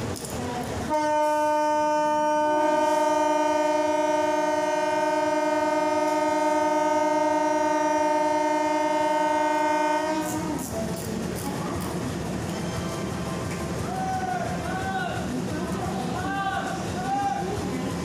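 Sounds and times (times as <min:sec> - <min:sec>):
locomotive air horn blast: 0:00.9 - 0:10.8.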